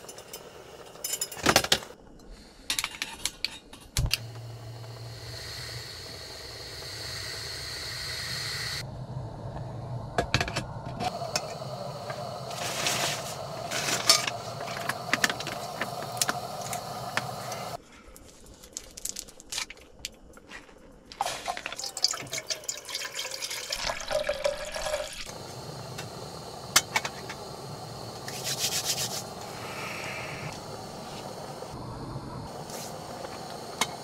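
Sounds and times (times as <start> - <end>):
water bubbling in a pot: 21.2 - 25.4.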